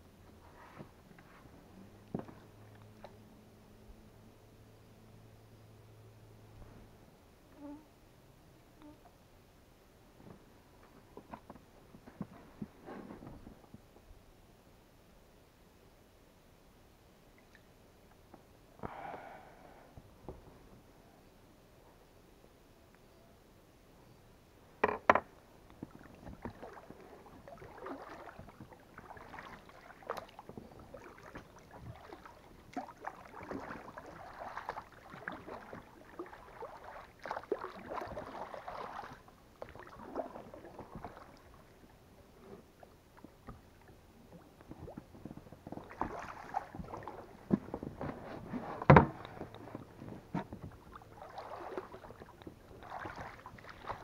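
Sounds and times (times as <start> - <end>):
oars splashing in water: 25.7 - 54.0.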